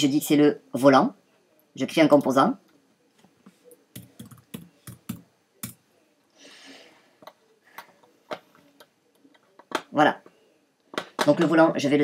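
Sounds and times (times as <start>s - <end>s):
keyboard and mouse clicking: 4.0s - 5.8s.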